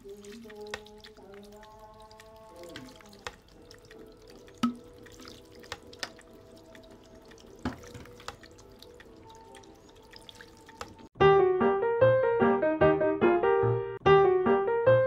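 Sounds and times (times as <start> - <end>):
water trickling onto pebbles: 0.0 - 11.2
bamboo spout knocking: 2.6 - 6.3, 7.2 - 9.3.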